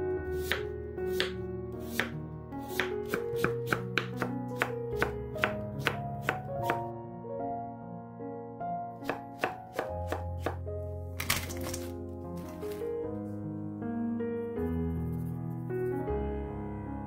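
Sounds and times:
background music sustained notes: 0:00.0 - 0:17.0
knife chopping on wooden board: 0:00.4 - 0:02.1, 0:02.7 - 0:06.9, 0:09.0 - 0:10.6.

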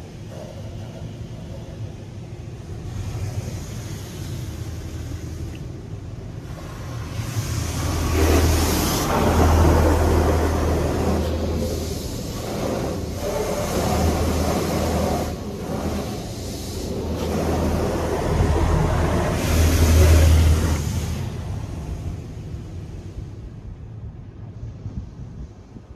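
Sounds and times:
dryer blowers rushing: 0:06.4 - 0:23.4.

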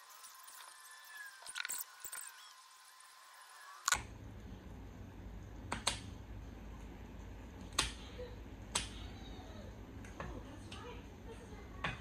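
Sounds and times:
steady low hum: 0:03.9 - 0:12.0.

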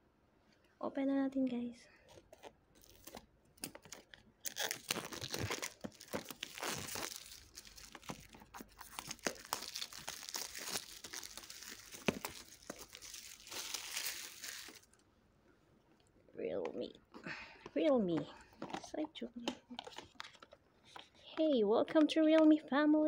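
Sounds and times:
plastic shrink wrap crinkling: 0:02.0 - 0:15.0, 0:19.4 - 0:21.5.

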